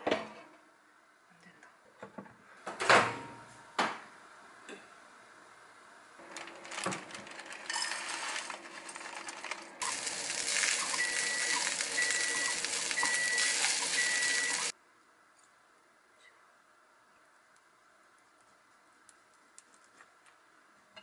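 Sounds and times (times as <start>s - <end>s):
rice sizzling in a frying pan: 7.4s - 14.8s
short high beeps: 10.9s - 14.7s.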